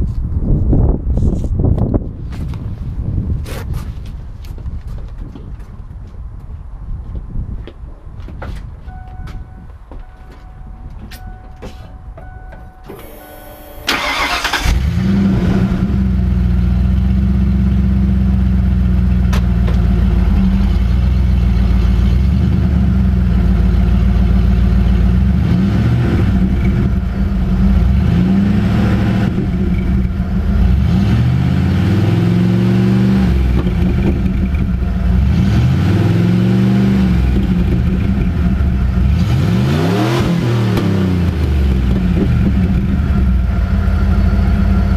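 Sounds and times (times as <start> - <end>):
engine starter cranking: 12.8 - 15.1
engine revving: 13.0 - 18.7, 19.8 - 44.9
car engine idling loudly: 41.2 - 44.9.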